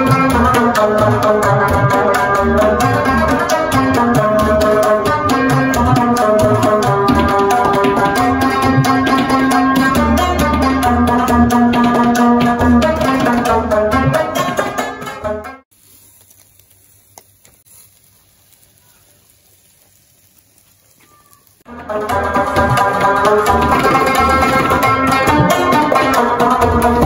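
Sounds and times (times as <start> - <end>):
fast hand-drum beat: 0.0 - 14.8, 21.7 - 27.0
held melody: 0.0 - 15.7, 20.3 - 27.0.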